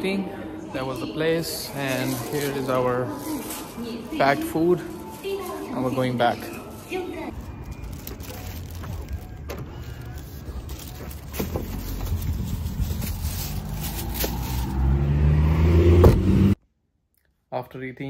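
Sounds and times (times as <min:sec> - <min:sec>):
car engine and road noise: 0:07.2 - 0:16.6.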